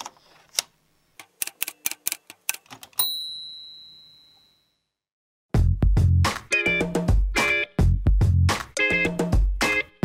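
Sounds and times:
typewriter carriage bell ding: 0:03.0 - 0:04.8.

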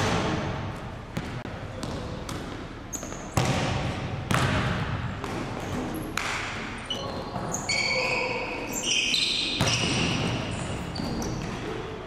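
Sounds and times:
shoes squeaking on hardwood floor: 0:06.8 - 0:11.8.

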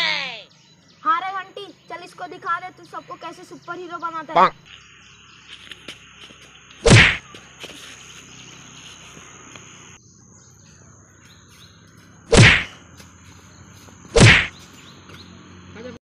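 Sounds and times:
birds chirping: 0:00.0 - 0:16.0
thin steady insect drone: 0:00.0 - 0:16.0
loud whack hits: 0:06.8 - 0:07.2, 0:12.3 - 0:12.8, 0:14.2 - 0:14.5.

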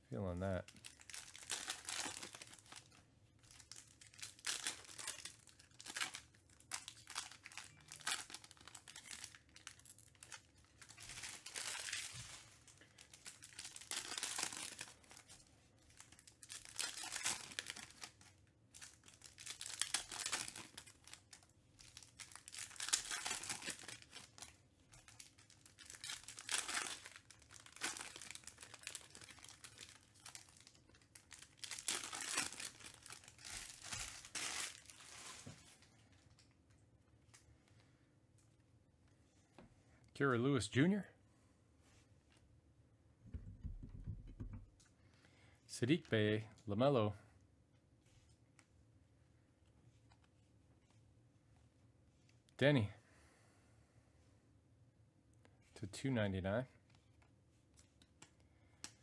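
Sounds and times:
foil wrappers crinkling and tearing: 0:00.7 - 0:36.5.

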